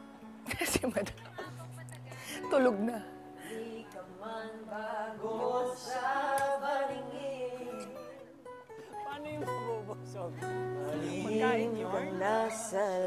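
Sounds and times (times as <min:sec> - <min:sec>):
acoustic guitar: 0:00.0 - 0:13.0
person singing slow melody: 0:03.2 - 0:08.6, 0:10.4 - 0:13.0.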